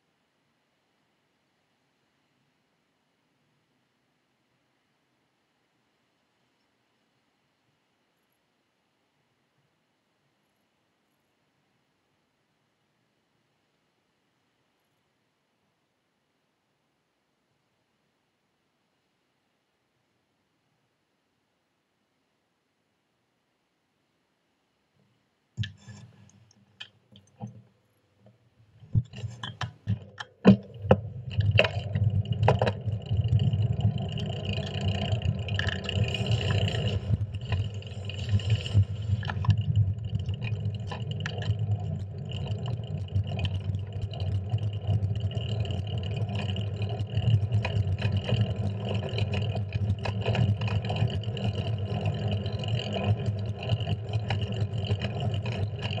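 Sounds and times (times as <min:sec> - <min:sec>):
sharp clicks and knocks: 0:25.6 - 0:56.0
bicycle road noise: 0:28.8 - 0:56.0.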